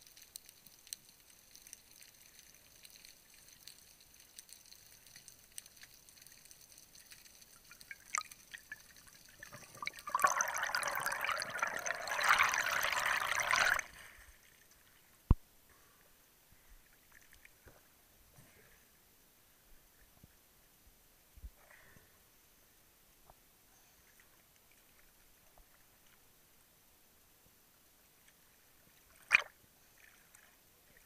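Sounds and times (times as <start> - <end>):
faint underwater clicks: 0.0 - 15.9
air bubbles hissing underwater: 9.4 - 13.9.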